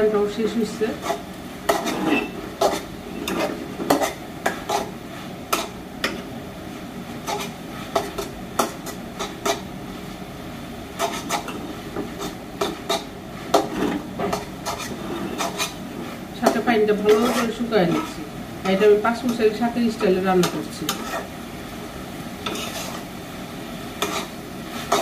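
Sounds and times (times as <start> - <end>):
greens frying in a pan: 0.0 - 25.0
spatula scraping a pan: 0.5 - 6.2, 7.1 - 9.7, 11.0 - 18.3, 19.2 - 21.4, 22.4 - 23.2, 23.9 - 25.0.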